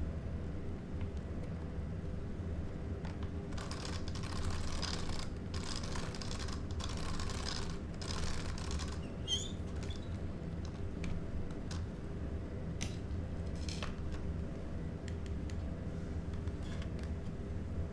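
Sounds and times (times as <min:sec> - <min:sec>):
steady low hum: 0:00.0 - 0:17.9
short squeak: 0:09.0 - 0:10.2.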